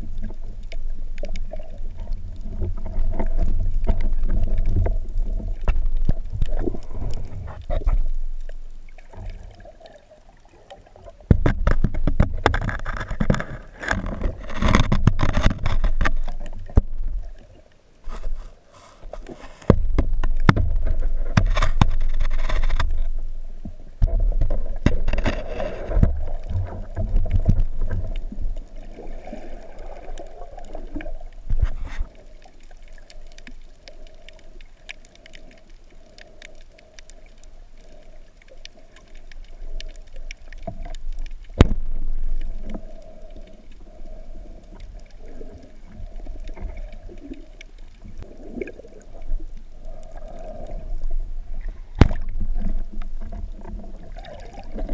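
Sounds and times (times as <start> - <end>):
muffled water churning and splashing: 0.0 - 54.9
underwater hiss: 25.4 - 26.8.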